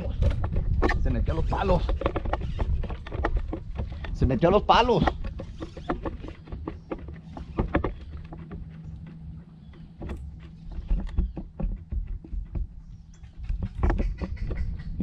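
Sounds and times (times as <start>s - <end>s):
electric trolling motor hum: 0.0s - 15.0s
knocks and clicks on kayak hull: 0.0s - 15.0s.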